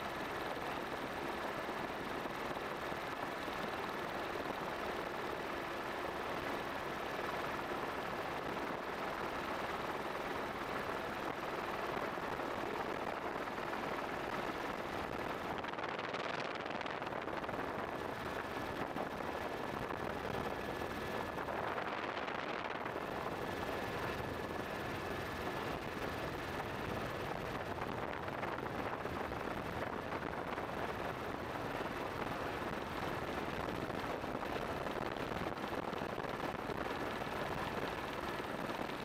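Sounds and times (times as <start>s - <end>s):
helicopter rushing noise: 8.0s - 39.0s.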